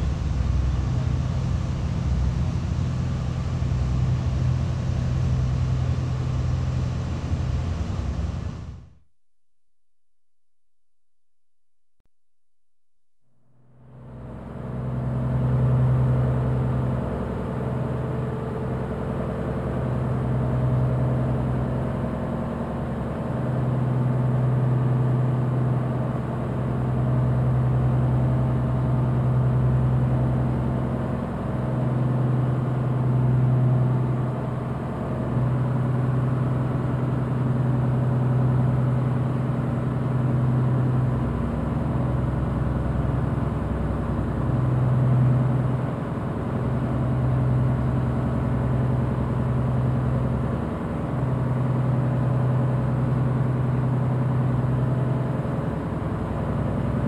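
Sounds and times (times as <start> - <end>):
boat engine droning: 0.0 - 8.8, 13.7 - 57.0.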